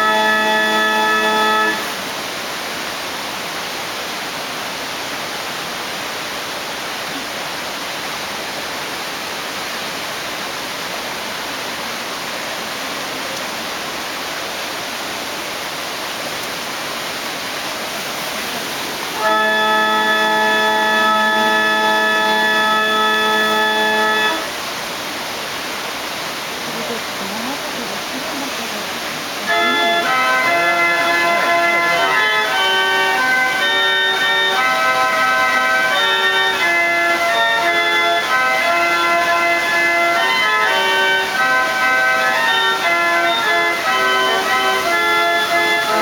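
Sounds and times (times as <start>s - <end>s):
water organ chord: 0.0s - 2.0s, 17.8s - 24.7s, 26.7s - 46.0s
rush of falling water: 0.0s - 46.0s.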